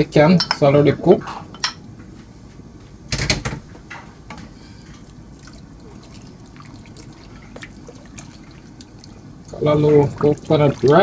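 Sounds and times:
wooden spoon stirring in pot: 4.4 - 11.0
soft liquid sounds: 4.6 - 11.0.

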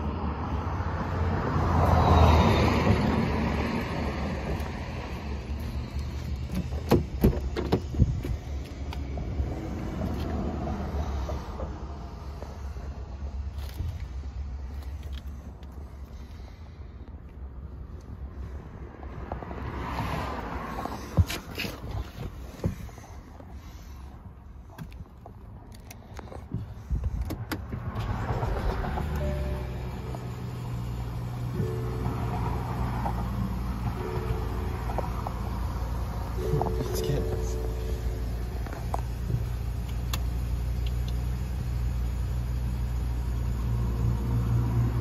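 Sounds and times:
car engine cranking and starting: 2.9 - 17.1, 19.9 - 45.0
car door latch clicks and clunks: 6.4 - 8.4, 26.5 - 28.2
steady low rumble: 20.7 - 44.3.

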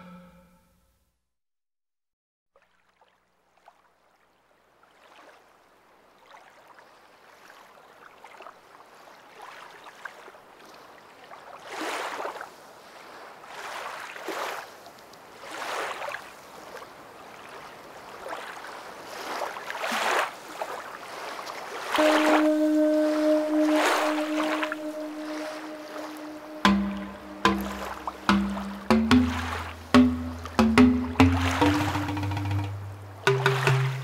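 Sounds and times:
surf-like wash of noise: 22.0 - 34.0.

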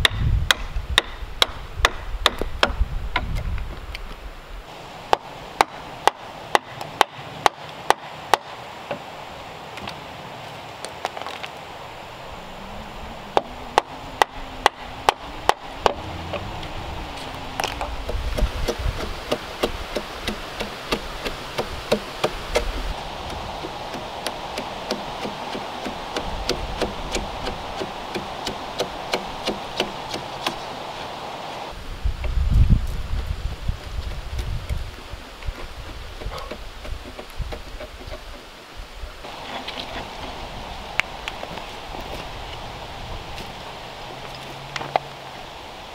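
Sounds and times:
chisel cutting wood: 13.4 - 30.6.

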